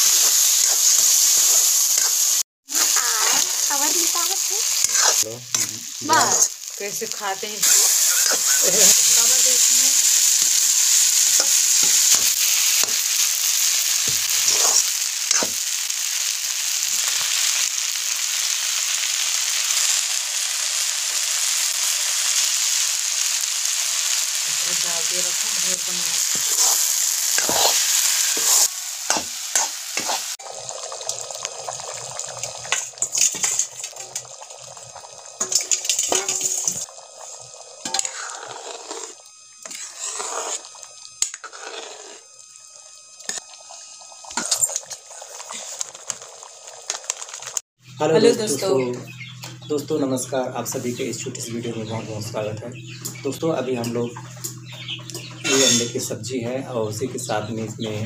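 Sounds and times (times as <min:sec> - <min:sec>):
food sizzling in a wok: 0:00.0 - 0:56.1
metal spatula scraping a pan: 0:04.8 - 0:06.6, 0:07.6 - 0:10.1, 0:14.3 - 0:15.5, 0:26.3 - 0:30.3, 0:37.8 - 0:42.3, 0:55.4 - 0:56.0.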